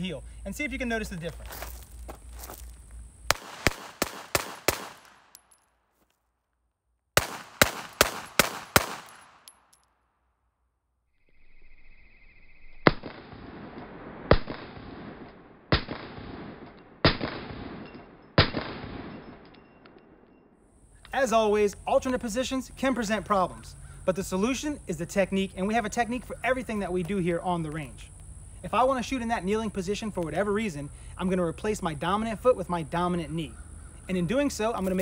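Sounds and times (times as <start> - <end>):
pistol shots: 3.3 - 5.5, 7.2 - 9.6, 12.9 - 19.5.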